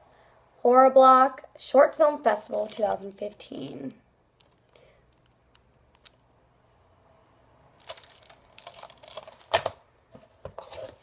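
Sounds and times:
book pages flipping: 0:07.8 - 0:11.0.

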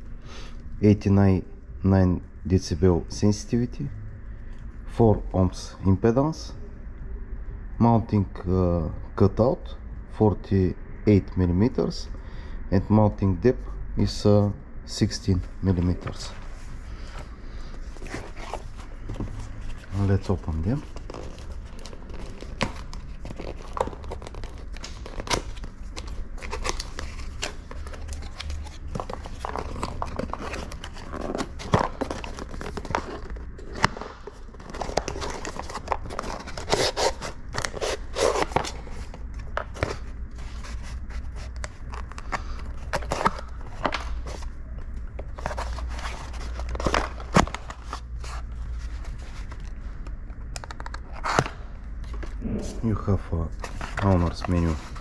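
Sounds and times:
low steady hum: 0:00.0 - 0:55.0
cardboard tearing and rustling: 0:18.0 - 0:44.5.

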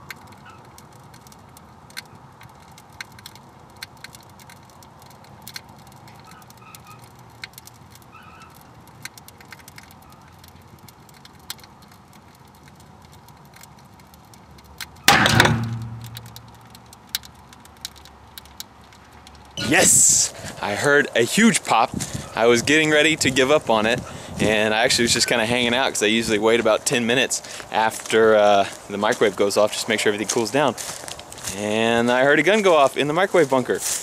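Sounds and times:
fire crackling and popping: 0:00.0 - 0:34.0
gunshot bang: 0:15.1 - 0:16.2.

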